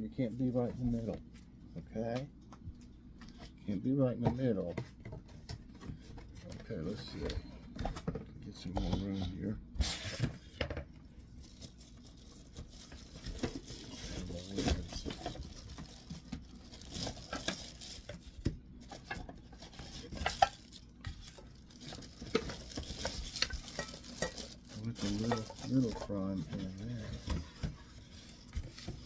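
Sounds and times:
plastic bag crinkling: 11.4s - 18.4s, 19.0s - 27.3s.

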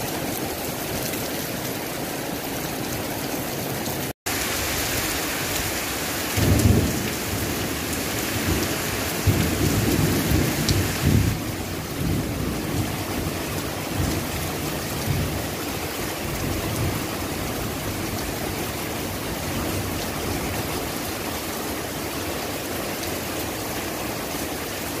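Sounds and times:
steady rain: 0.0s - 25.0s
thunder rumbling: 4.6s - 15.5s.

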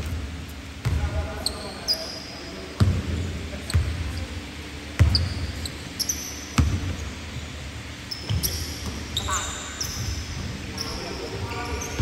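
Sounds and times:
basketball bouncing in a hall: 0.0s - 12.0s
sneaker squeaks: 0.8s - 4.4s, 5.0s - 12.0s.

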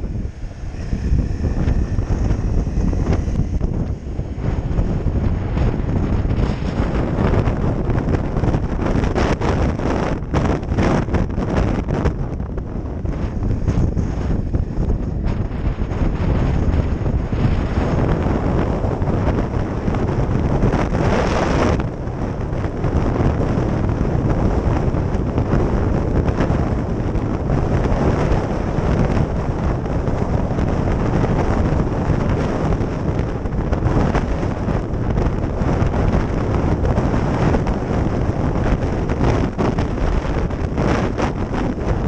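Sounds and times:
motorcycle engine running: 0.0s - 42.0s
wind buffeting on microphone: 0.0s - 42.0s.

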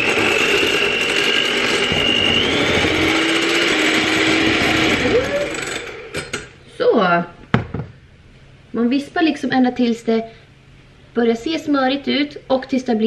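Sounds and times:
electric hand mixer whining: 0.0s - 6.5s.

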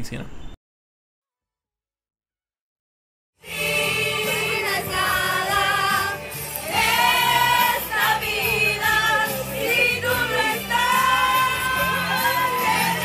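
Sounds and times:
song with repeating bass line: 3.5s - 13.0s.

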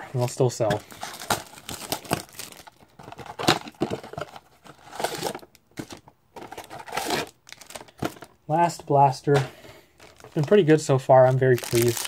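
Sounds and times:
plastic wrap crinkling and tearing: 0.2s - 5.6s, 6.4s - 8.3s, 10.0s - 12.0s.

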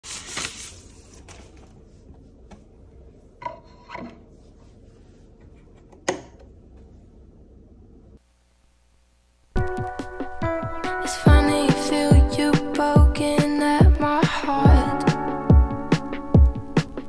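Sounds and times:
paper sleeve rustling: 0.0s - 1.9s.

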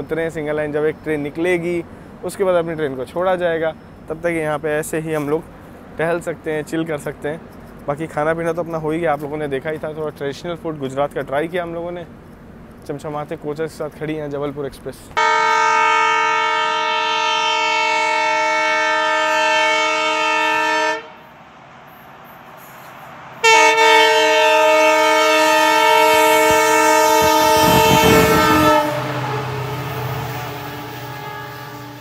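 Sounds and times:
low train rumble: 0.0s - 32.0s
locomotive horn blasts: 15.2s - 21.3s, 23.4s - 32.0s.

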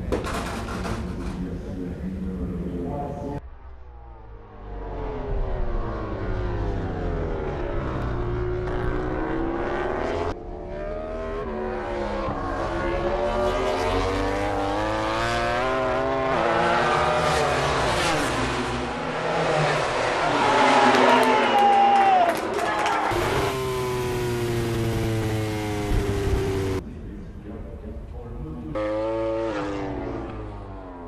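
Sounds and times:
motorcycle engine at high revs: 11.0s - 19.8s, 23.1s - 26.8s, 28.8s - 30.6s.

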